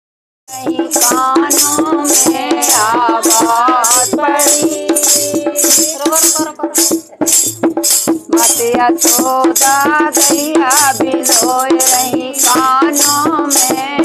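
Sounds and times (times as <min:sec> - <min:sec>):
rattle steady beat: 0:00.5 - 0:14.0.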